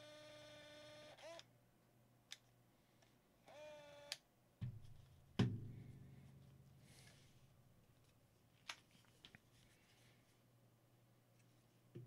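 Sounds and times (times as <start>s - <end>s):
small electric motor whirring: 0.0s - 1.4s, 3.5s - 4.2s.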